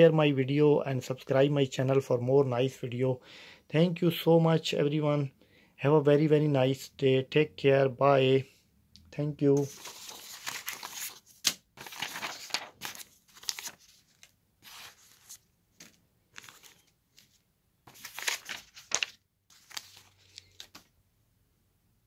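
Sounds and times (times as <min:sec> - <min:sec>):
paper rustling: 0:09.6 - 0:20.9.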